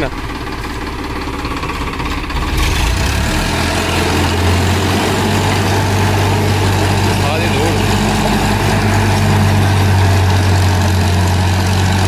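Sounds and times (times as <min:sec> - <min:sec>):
tractor diesel engine under load: 0:00.0 - 0:12.0
rotavator blades churning soil: 0:00.4 - 0:12.0.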